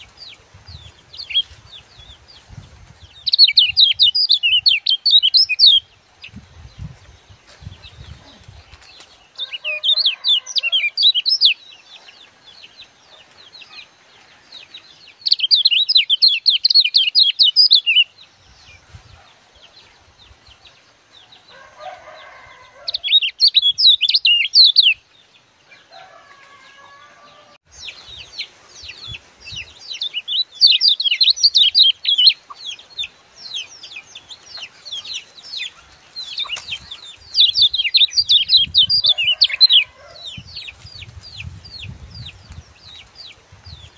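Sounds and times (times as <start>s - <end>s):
bird twittering chirps: 0.0s - 6.9s, 7.7s - 13.8s, 15.1s - 18.8s, 22.9s - 25.0s, 27.8s - 43.9s.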